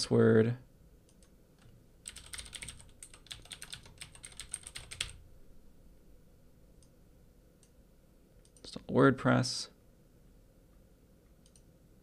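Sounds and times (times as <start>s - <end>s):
typing on keyboard: 1.6s - 5.2s.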